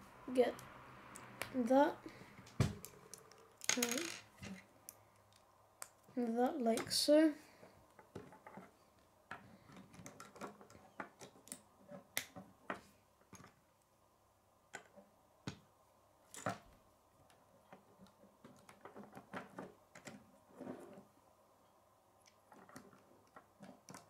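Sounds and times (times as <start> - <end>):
pieces tapping on wooden table: 2.5 - 4.6
plastic pieces clicking together: 2.8 - 6.1.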